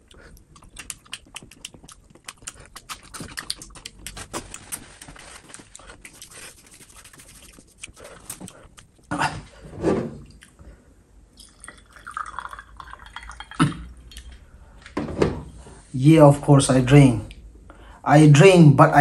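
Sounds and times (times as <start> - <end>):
open-mouth chewing: 0.0 - 9.1.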